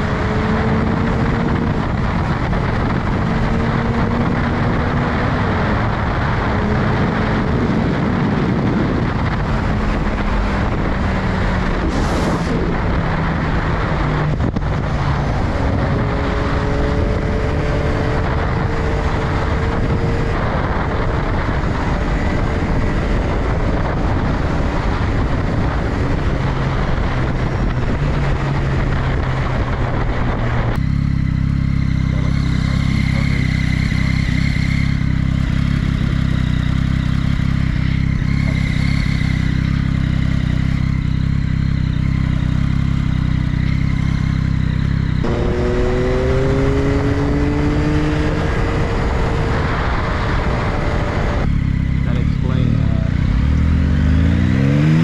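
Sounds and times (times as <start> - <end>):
wind rush: 0.0 - 41.9, 44.9 - 55.0
motorcycle engine running: 0.0 - 55.0
deep muffled rumble: 0.8 - 16.4, 47.7 - 53.7.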